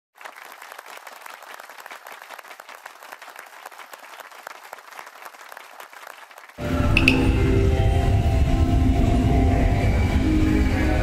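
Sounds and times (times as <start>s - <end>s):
crowd applauding: 0.2s - 7.1s.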